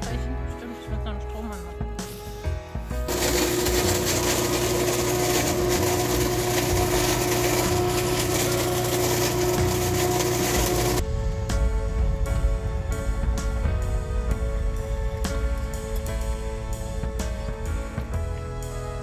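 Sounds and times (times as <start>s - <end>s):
music: 0.0s - 19.0s
leaf vacuum running: 3.1s - 11.0s.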